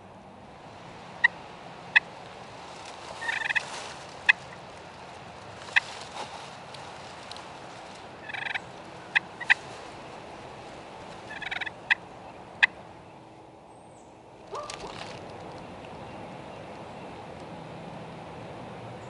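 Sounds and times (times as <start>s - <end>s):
turkey clucking: 1.2s - 2.1s, 3.2s - 3.7s, 8.2s - 9.6s, 11.2s - 12.8s.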